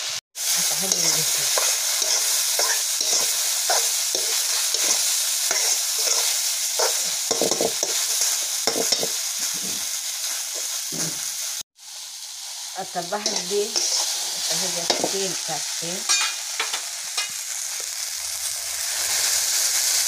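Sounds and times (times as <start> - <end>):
okra sizzling in a pan: 0.0 - 20.0
metal spoon scraping a pan: 0.7 - 9.9, 13.2 - 15.2.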